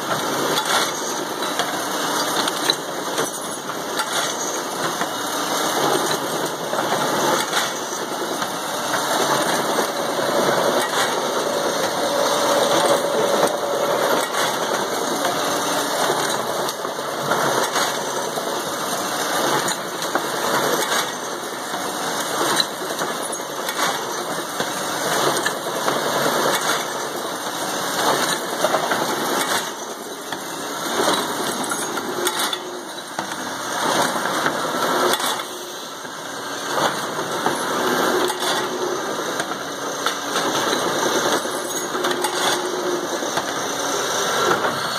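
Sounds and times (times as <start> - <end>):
short clacks and clatter: 5.8 - 18.2, 19.4 - 21.4, 22.2 - 27.1, 28.0 - 35.6, 39.4 - 43.6
paper core cutter running: 5.8 - 19.3.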